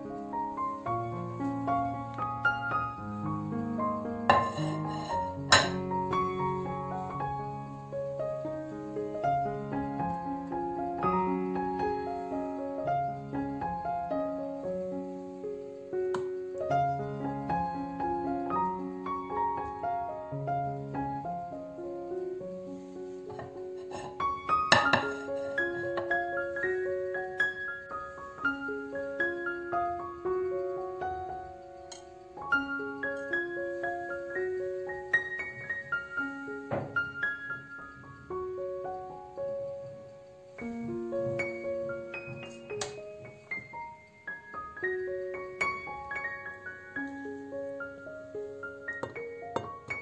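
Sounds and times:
gentle piano melody: 0.0s - 50.0s.

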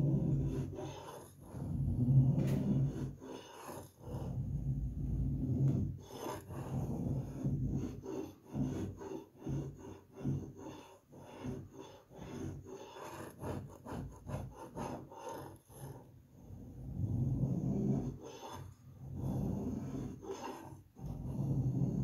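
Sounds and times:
knife blade scraping plasterboard: 5.4s - 15.6s.

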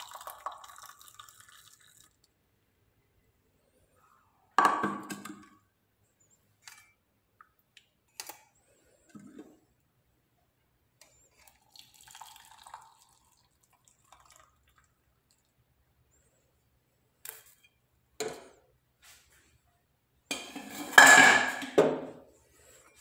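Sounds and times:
tea trickling through strainer: 0.0s - 2.4s, 11.0s - 15.6s
clinks of pan and cups: 20.3s - 22.0s.

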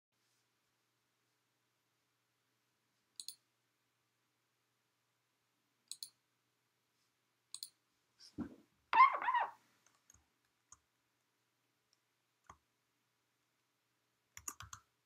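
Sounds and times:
computer mouse clicks: 3.2s - 3.5s, 5.9s - 6.2s, 7.5s - 7.8s, 14.4s - 14.9s.

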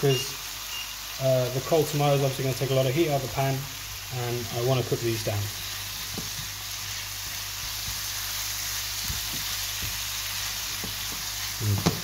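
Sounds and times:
vegetables sizzling in a frying pan: 0.0s - 12.0s
spatula tapping a pan: 9.0s - 10.1s, 10.7s - 12.0s.

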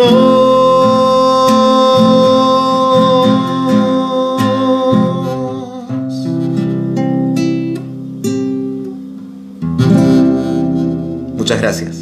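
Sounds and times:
man singing a long note: 0.0s - 6.6s
classical guitar strummed: 0.0s - 12.0s.

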